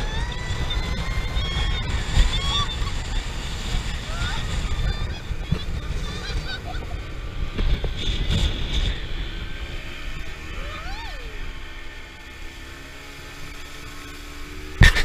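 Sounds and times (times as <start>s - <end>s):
riders crying out: 0.0s - 12.9s
wind buffeting microphone: 0.0s - 13.9s
person whooping: 4.0s - 5.3s, 10.5s - 11.5s.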